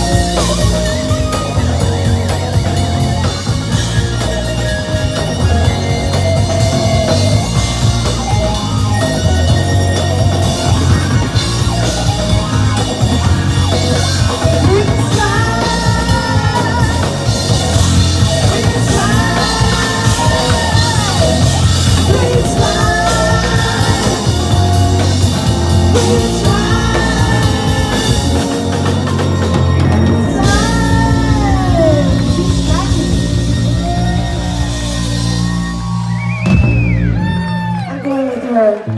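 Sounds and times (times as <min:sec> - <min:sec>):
bass guitar: 0:00.0 - 0:38.9
drum kit: 0:00.0 - 0:38.9
electric guitar: 0:00.0 - 0:38.9
person singing: 0:14.2 - 0:29.0, 0:30.1 - 0:35.2.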